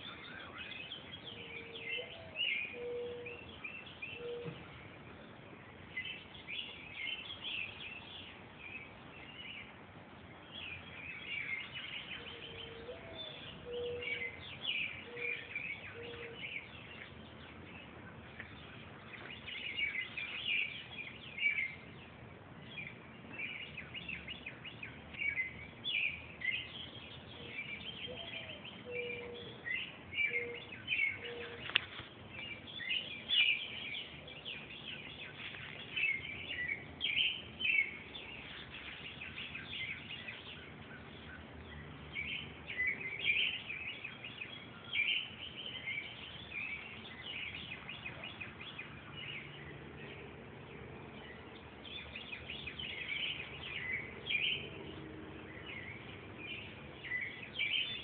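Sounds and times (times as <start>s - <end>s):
songbirds chirping: 0.0s - 58.0s
owl hooting: 1.3s - 3.4s, 4.2s - 4.6s, 12.2s - 14.4s, 28.1s - 29.6s, 30.2s - 31.7s.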